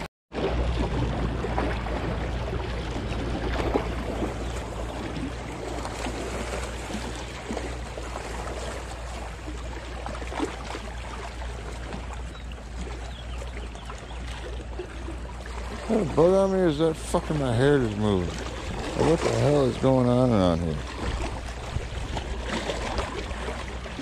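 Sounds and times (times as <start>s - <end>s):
waves lapping against rocks: 0.3s - 24.0s.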